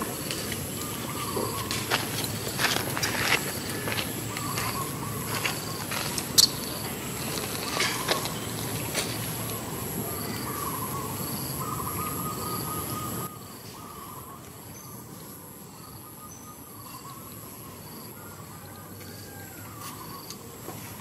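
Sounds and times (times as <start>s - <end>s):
insects trilling and chirping: 0.0s - 21.0s
wavering whistle-like calls: 10.4s - 13.9s.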